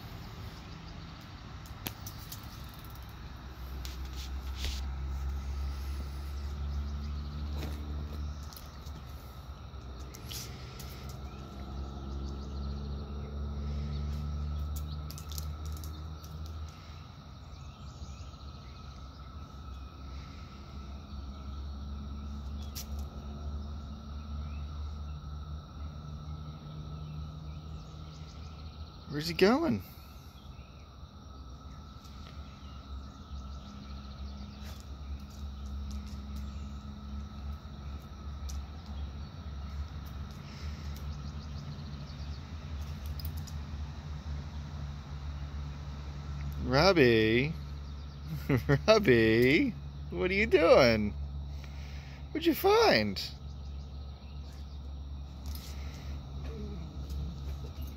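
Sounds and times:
low steady rumble: 0.0 - 29.1
high insect drone: 0.0 - 57.9
loud low hum: 3.3 - 29.0.

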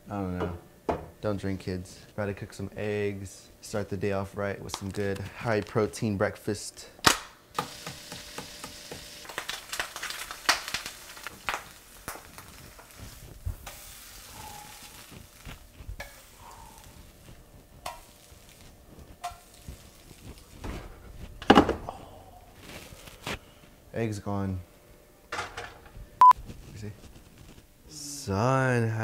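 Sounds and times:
eggs sizzling in a frying pan: 7.5 - 21.6.

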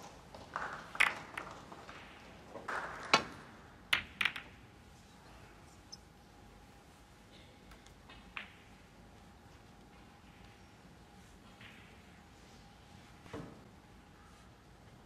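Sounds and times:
snooker balls clicking: 0.0 - 4.8, 7.7 - 10.6.

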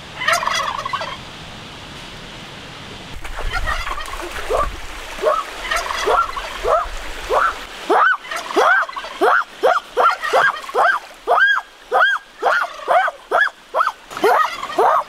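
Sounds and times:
turkey yelping: 0.2 - 1.2, 3.5 - 15.0
water splashing: 3.1 - 15.0.

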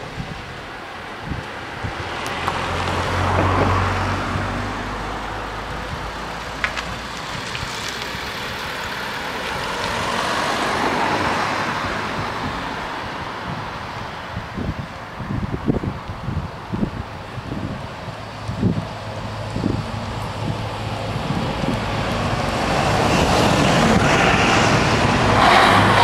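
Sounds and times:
road vehicles passing: 0.0 - 26.0.

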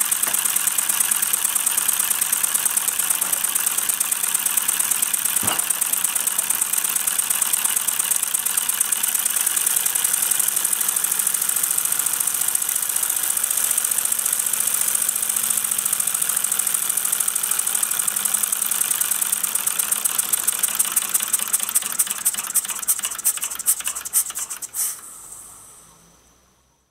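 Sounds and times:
model steam engine chuffing: 0.0 - 25.8
steam hiss: 22.6 - 26.0.

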